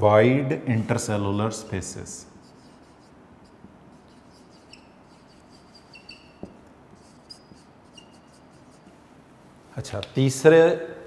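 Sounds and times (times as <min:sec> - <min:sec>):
marker squeaking on whiteboard: 0:02.4 - 0:09.0.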